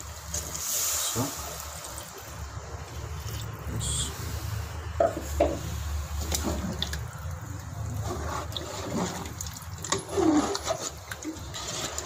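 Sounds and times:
curry sloshing in metal pot: 0:05.6 - 0:12.0.

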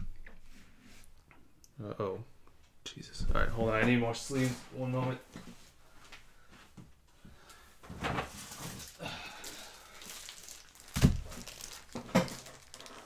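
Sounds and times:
plastic crinkling: 0:08.2 - 0:13.0.

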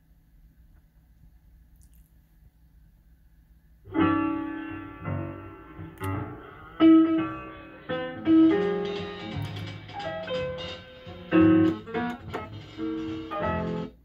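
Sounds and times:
piano-like music from cd player: 0:03.9 - 0:14.0.

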